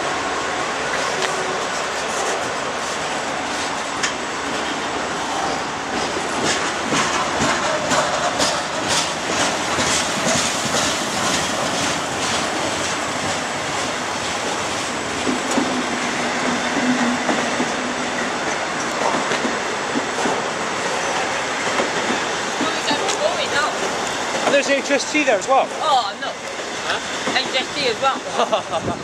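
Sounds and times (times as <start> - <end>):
freight train rumbling past: 0.0 - 29.0
wheels clicking over rail joints: 5.5 - 28.5.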